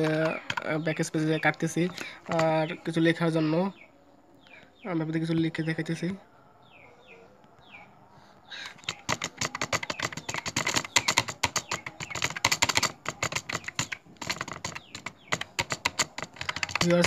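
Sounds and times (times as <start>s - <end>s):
computer keyboard typing: 0.0s - 2.6s, 8.6s - 17.0s.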